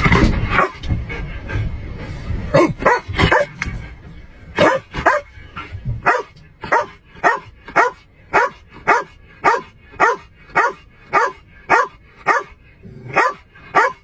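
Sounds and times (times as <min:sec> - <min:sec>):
dog barking: 0:00.6 - 0:00.8, 0:02.5 - 0:03.6, 0:04.6 - 0:05.3, 0:06.0 - 0:14.0.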